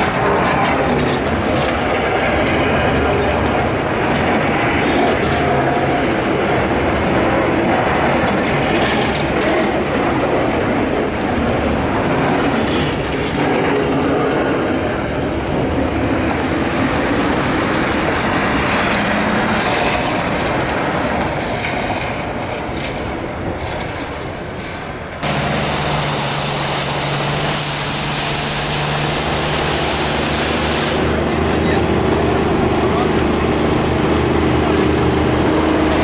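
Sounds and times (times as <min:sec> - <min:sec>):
street vehicle rumble and hiss: 0:00.0 - 0:36.0
vehicle hum with strong hiss: 0:23.6 - 0:36.0.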